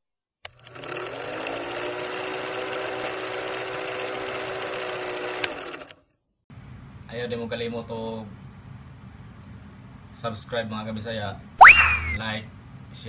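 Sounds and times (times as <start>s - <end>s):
film projector rattling whir: 0.5s - 6.0s.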